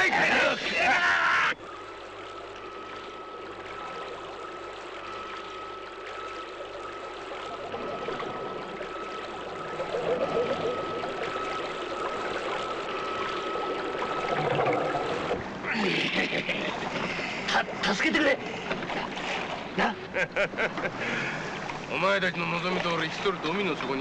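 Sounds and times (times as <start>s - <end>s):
water rushing and bubbling: 1.6s - 20.1s.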